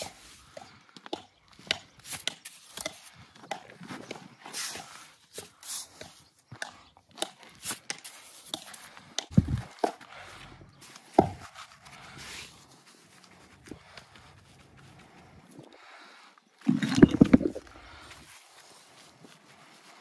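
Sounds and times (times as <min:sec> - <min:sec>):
stones knocking and scraping: 0:16.6 - 0:18.0.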